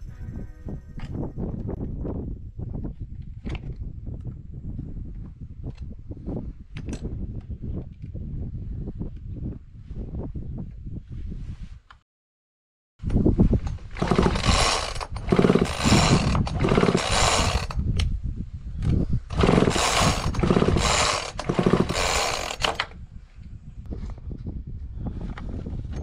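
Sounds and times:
chainsaw recoil starter pulls: 0:13.6 - 0:17.8, 0:19.3 - 0:22.9
engine whirring over: 0:13.6 - 0:17.8, 0:19.3 - 0:22.9.

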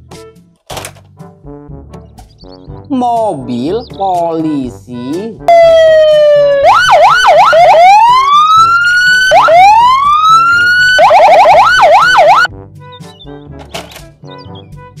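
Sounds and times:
police siren wailing and yelping: 0:05.5 - 0:12.5.

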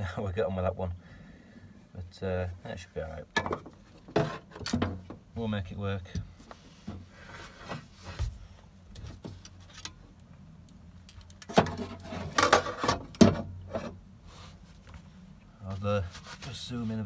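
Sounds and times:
metallic clanks and scrapes: 0:03.4 - 0:04.9, 0:11.4 - 0:14.0.

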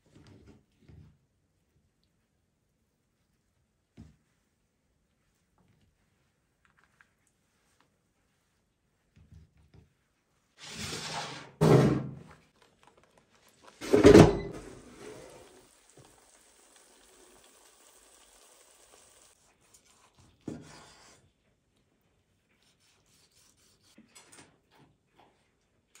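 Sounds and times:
food sizzling: 0:13.5 - 0:19.4.

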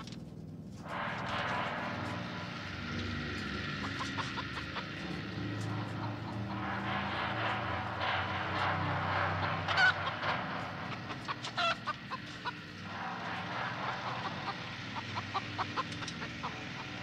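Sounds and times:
low steady drone: 0:00.0 - 0:17.0
chicken squawking and clucking: 0:09.4 - 0:10.2, 0:10.9 - 0:12.7, 0:13.8 - 0:17.0.

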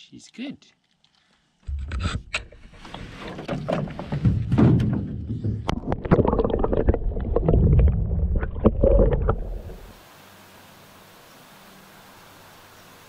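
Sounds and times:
faint hiss: 0:09.8 - 0:13.0.

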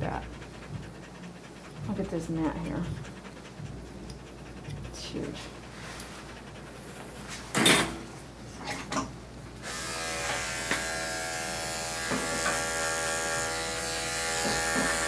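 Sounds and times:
electric clippers buzzing: 0:09.6 - 0:15.0.

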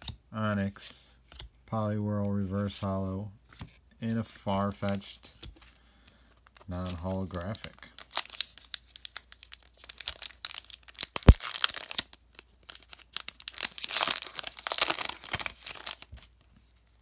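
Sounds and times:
foil wrapper crinkling and tearing: 0:06.7 - 0:16.2.

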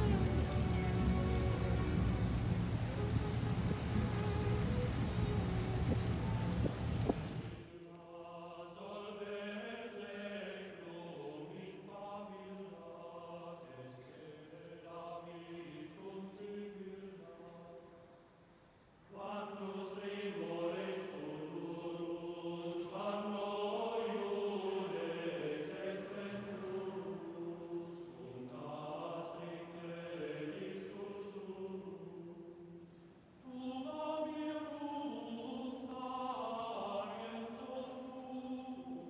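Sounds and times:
low sustained drone: 0:00.0 - 0:06.6
choral voices holding long notes: 0:00.0 - 0:18.0, 0:19.1 - 0:39.0.

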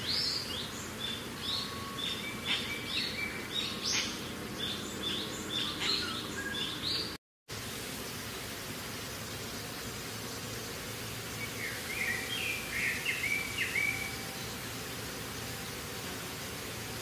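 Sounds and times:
birds chirping: 0:00.0 - 0:07.2, 0:09.8 - 0:14.8
steady background hiss: 0:00.0 - 0:17.0.

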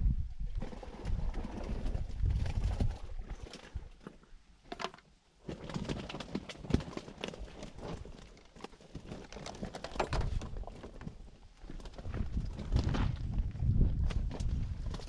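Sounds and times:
fishing tackle clicking and rustling: 0:05.7 - 0:11.1.

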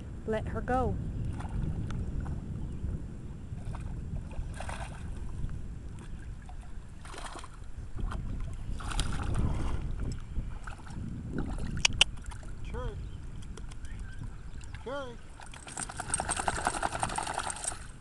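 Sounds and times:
wind rumble on microphone: 0:00.0 - 0:18.0
dog splashing through water: 0:06.4 - 0:09.8, 0:14.6 - 0:17.8.

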